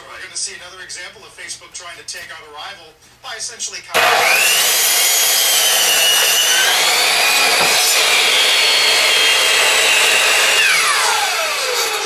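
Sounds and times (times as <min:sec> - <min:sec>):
miter saw cutting wood: 0:04.0 - 0:12.0.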